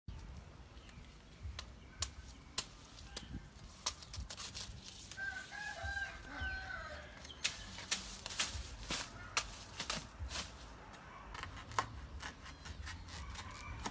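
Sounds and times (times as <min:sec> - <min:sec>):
rooster crowing: 0:05.2 - 0:07.2.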